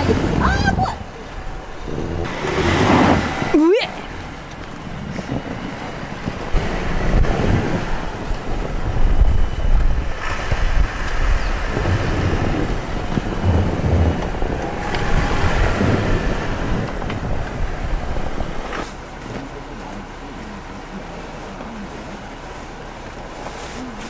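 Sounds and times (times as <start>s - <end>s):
wind buffeting microphone: 0.0s - 18.9s.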